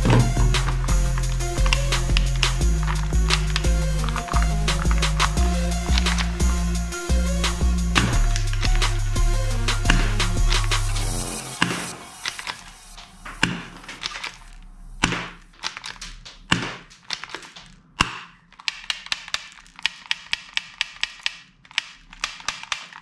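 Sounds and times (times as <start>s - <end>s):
toy handguns clicking: 0.6s - 6.4s, 13.4s - 23.0s.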